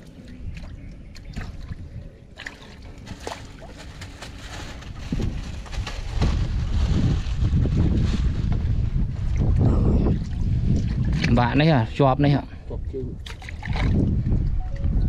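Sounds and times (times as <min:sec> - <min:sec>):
water sloshing in a boat: 0:00.0 - 0:05.7, 0:09.1 - 0:12.0, 0:13.2 - 0:14.8
low rumble: 0:00.0 - 0:11.9.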